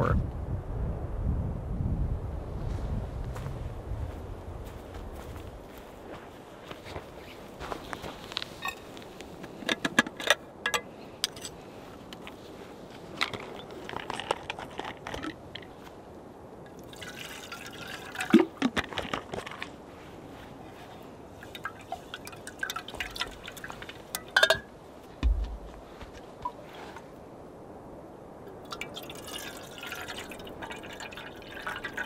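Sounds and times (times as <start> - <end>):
metal clinks and clatter: 9.7 - 11.6
water pouring into metal kettle: 16.8 - 18.5, 21.5 - 24.3, 28.6 - 32.0.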